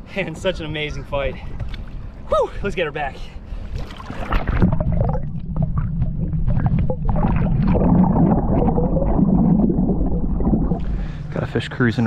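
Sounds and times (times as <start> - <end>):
water sloshing and gurgling: 0.4 - 11.4
crackling splashes: 3.7 - 11.1
heavy low rumble: 4.6 - 12.0.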